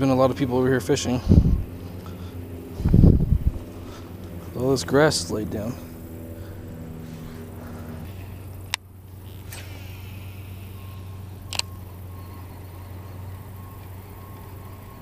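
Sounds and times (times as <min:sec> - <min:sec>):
construction machinery engines droning: 0:00.0 - 0:15.0
faint on-off beeping: 0:08.9 - 0:15.0.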